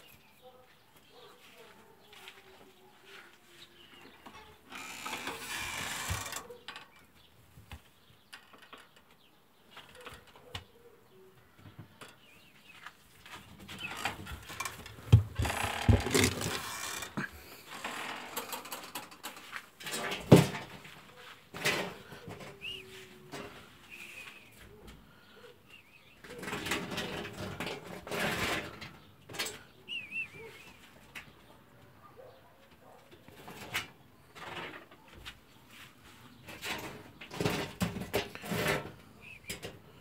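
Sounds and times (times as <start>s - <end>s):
wood and wire mesh clattering: 4.1s - 7.3s, 13.3s - 23.7s, 26.1s - 31.6s, 32.2s - 35.2s, 36.4s - 40.0s.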